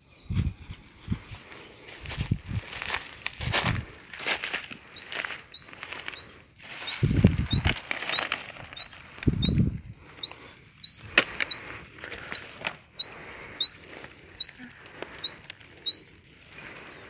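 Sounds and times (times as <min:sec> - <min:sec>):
high rising chirp: 0:00.0 - 0:00.3, 0:02.5 - 0:16.1
leaves rustling: 0:00.2 - 0:17.0.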